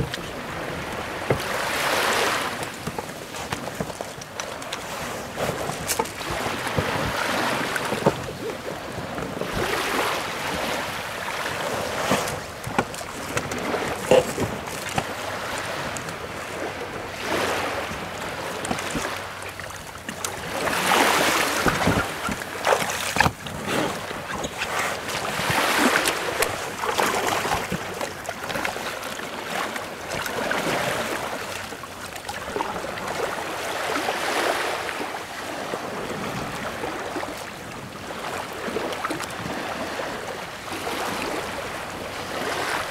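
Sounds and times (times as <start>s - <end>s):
sea water splashing around boat: 0.0s - 42.9s
wind buffeting microphone: 20.1s - 26.8s.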